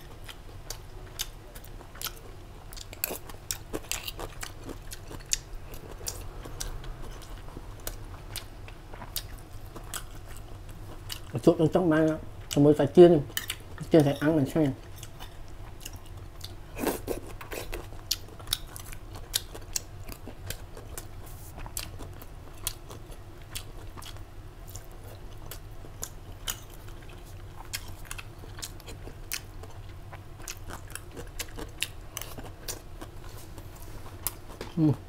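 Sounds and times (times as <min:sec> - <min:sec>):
person chewing crunchy food: 0:00.0 - 0:35.0.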